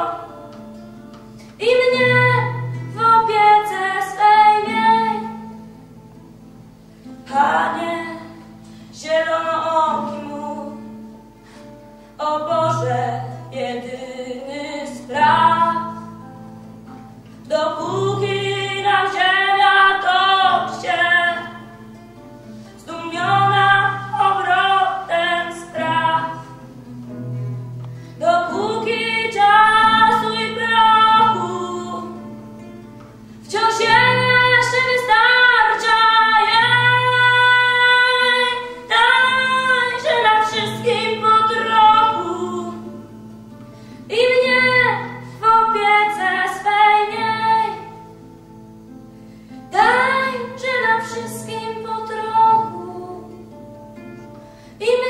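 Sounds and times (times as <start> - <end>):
girl singing: 0.0 - 0.8, 1.4 - 5.8, 7.0 - 11.4, 12.2 - 16.3, 17.4 - 22.0, 22.7 - 26.8, 28.2 - 32.8, 33.4 - 48.3, 49.7 - 53.8, 54.8 - 55.0
classical guitar strumming: 0.0 - 55.0.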